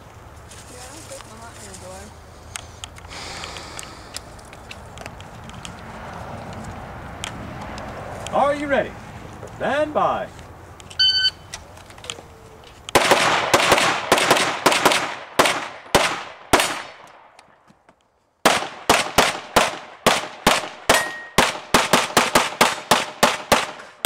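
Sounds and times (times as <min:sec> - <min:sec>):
shot timer beep: 0:11.0 - 0:11.5
rapid pistol shots: 0:12.9 - 0:17.3, 0:18.4 - 0:24.0.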